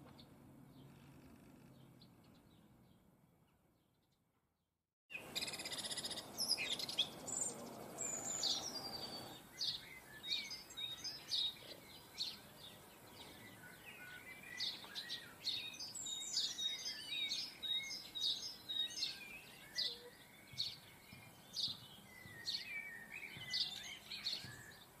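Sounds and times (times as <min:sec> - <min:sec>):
songbirds chirping and twittering: 0:00.0 - 0:04.4, 0:05.1 - 0:25.0.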